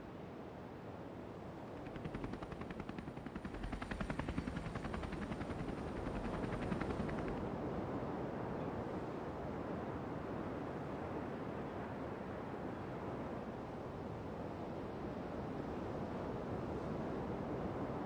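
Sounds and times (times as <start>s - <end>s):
helicopter rotor beating: 1.6s - 7.5s.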